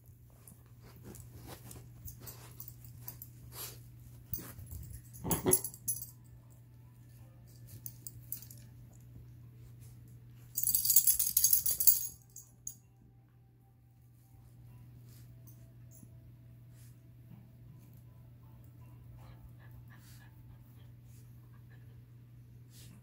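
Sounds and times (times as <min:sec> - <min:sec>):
dogs moving on carpet: 0:00.1 - 0:05.0.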